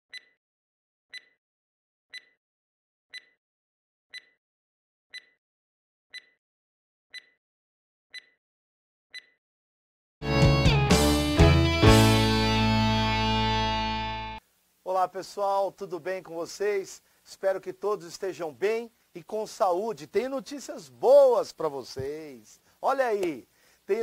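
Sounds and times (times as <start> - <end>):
high electronic countdown beeps: 0.1 - 0.4, 1.1 - 1.4, 2.1 - 2.4, 3.1 - 3.4, 4.1 - 4.4, 5.1 - 5.4, 6.1 - 6.4, 7.1 - 7.4, 8.1 - 8.4, 9.1 - 9.4
loud music: 10.2 - 14.4.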